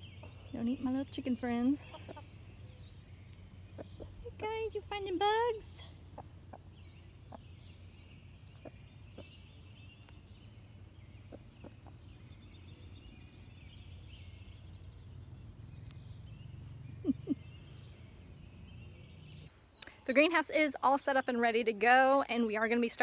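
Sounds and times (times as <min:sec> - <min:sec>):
songbirds chirping: 0:00.0 - 0:23.0
hens clucking: 0:00.2 - 0:12.2.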